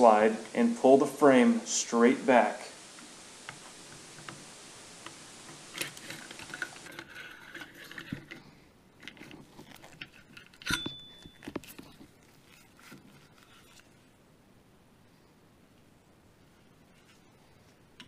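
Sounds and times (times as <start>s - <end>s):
pistol parts clicking and scraping: 5.0s - 13.9s
loud metallic click with ring: 10.7s - 11.2s.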